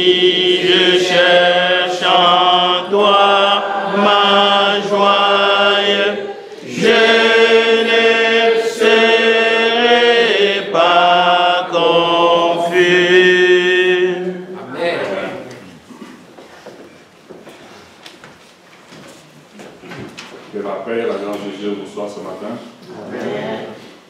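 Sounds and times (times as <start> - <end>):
voices chanting: 0.0 - 15.5.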